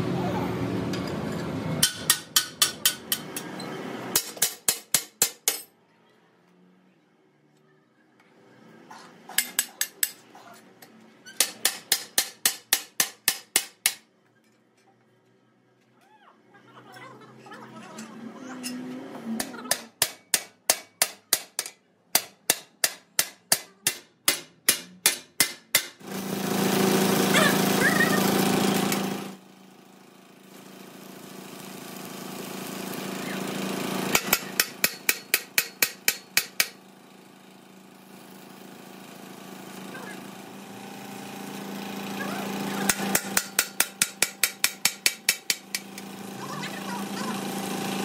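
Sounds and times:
hammer striking metal: 0.9s - 5.7s, 11.4s - 14.1s, 19.4s - 26.0s, 34.1s - 36.8s, 42.9s - 46.1s
loud machine humming: 26.0s - 30.0s, 30.6s - 48.0s.

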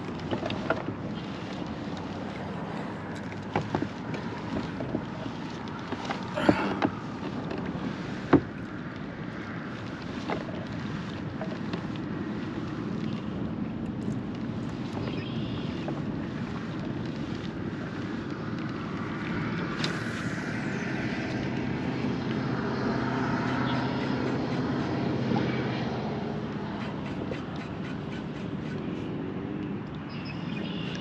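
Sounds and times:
distant engine droning: 0.0s - 31.0s
wind on microphone: 0.0s - 31.0s.

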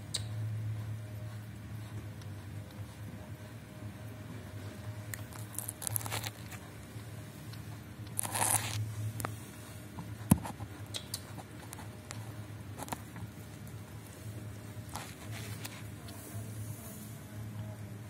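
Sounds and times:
low steady hum: 0.0s - 18.0s
rustling and crinkling: 4.3s - 16.7s.

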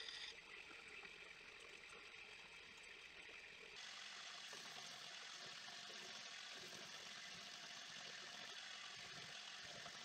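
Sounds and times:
bench grinder motor whirring: 0.0s - 0.3s.

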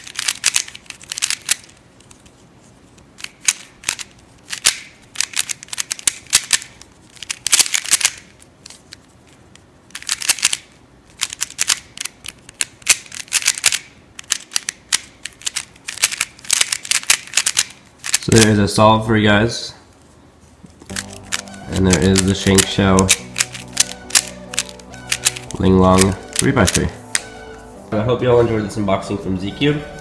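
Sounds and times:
plastic puzzle cube clicking: 0.0s - 1.8s, 3.2s - 9.0s, 9.9s - 18.5s, 20.9s - 27.3s.

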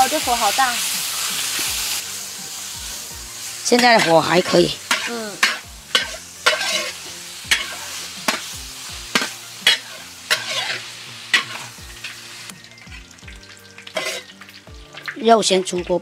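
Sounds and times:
oil sizzling: 0.0s - 16.0s
metal spatula scraping a wok: 3.6s - 12.5s, 13.4s - 14.5s.

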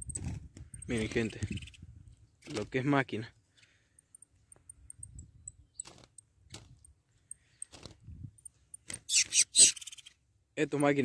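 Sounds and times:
high short chirps: 8.4s - 10.2s.

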